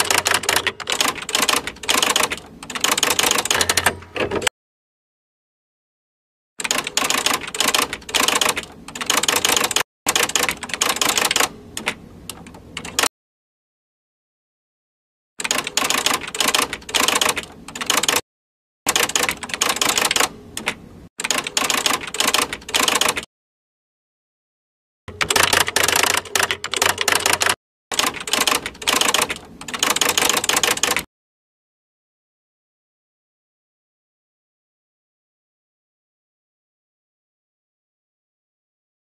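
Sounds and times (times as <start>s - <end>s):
keyboard typing clatter: 0.0s - 4.5s, 6.6s - 13.1s, 15.4s - 18.2s, 18.9s - 23.3s, 25.1s - 31.1s.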